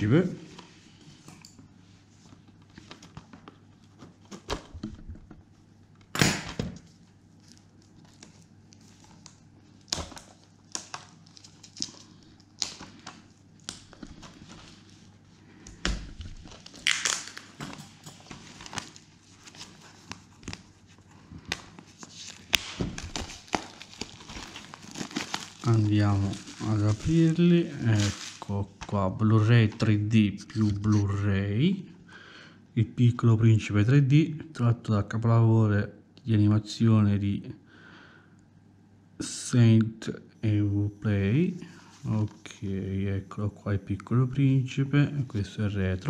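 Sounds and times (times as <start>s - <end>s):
shrink-wrap crinkling: 6.9s - 28.9s.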